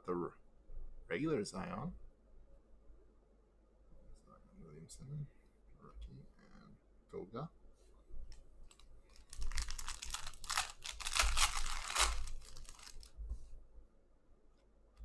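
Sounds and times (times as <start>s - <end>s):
foil wrapper tearing and crinkling: 8.7s - 13.1s.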